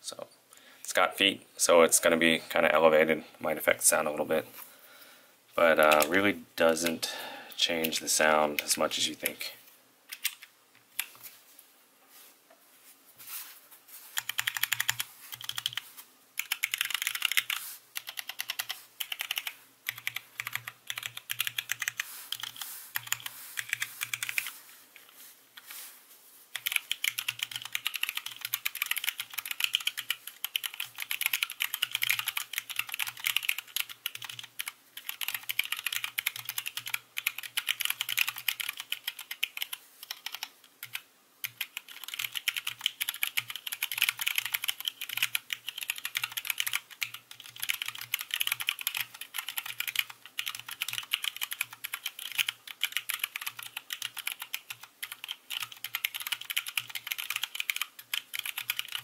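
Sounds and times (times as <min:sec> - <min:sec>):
mechanical keyboard typing: 0:14.2 - 0:15.8, 0:16.4 - 0:24.5, 0:26.6 - 0:59.0.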